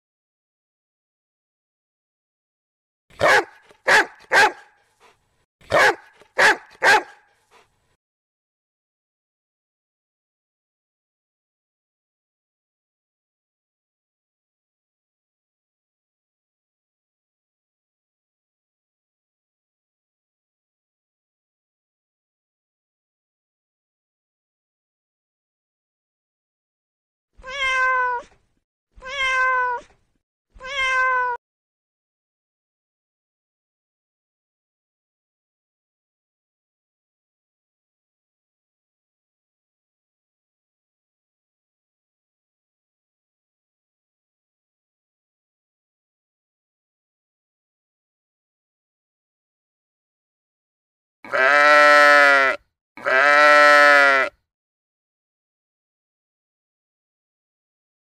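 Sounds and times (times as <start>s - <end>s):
dog barking: 3.1s - 4.8s, 5.6s - 7.7s
cat meowing: 27.4s - 28.4s, 29.0s - 30.0s, 30.6s - 31.4s.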